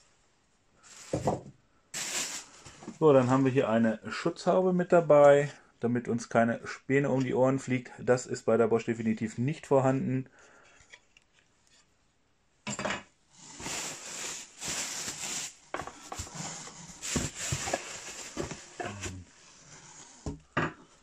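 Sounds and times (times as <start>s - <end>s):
packaging rustling: 2.0s - 3.0s, 13.5s - 19.4s.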